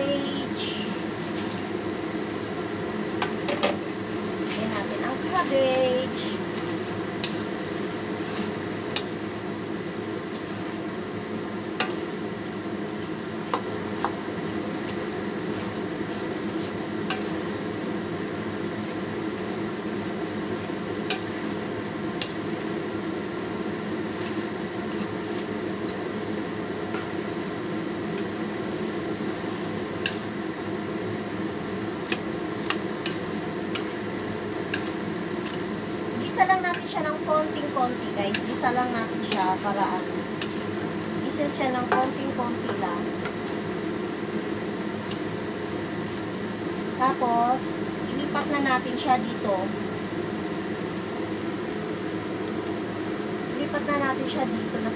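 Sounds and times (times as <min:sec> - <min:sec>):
steady hum: 0:00.0 - 0:54.9
wooden spoon stirring food: 0:03.2 - 0:46.8.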